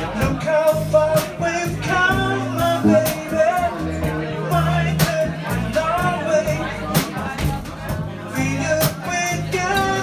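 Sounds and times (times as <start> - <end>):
band playing soft rock: 0.0 - 10.0
man singing: 0.0 - 10.0.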